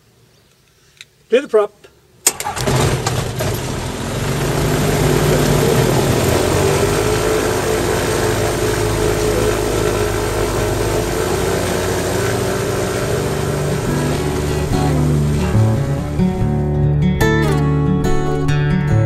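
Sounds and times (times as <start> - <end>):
propeller plane engine idling: 2.4 - 16.2.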